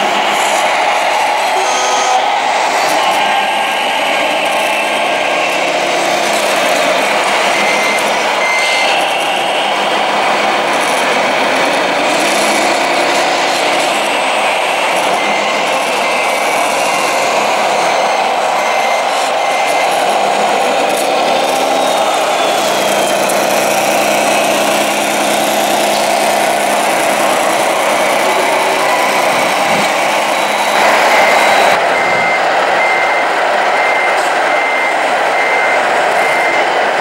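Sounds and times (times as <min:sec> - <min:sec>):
electronic diesel engine drone: 0:00.0 - 0:37.0
reversing alarm beeping: 0:00.0 - 0:37.0.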